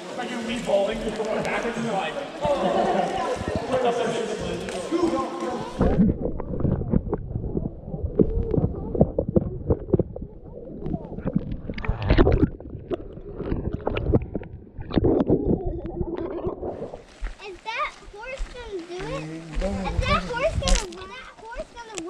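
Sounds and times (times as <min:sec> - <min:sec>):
muffled underwater sloshing: 0:02.1 - 0:17.4.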